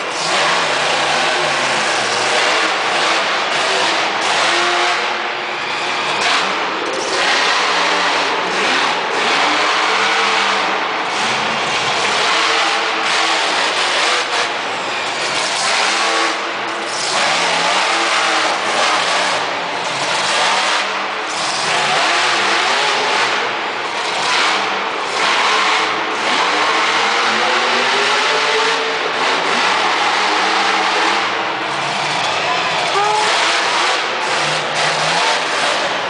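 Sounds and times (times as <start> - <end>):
monster truck engine revving: 0.0 - 36.0.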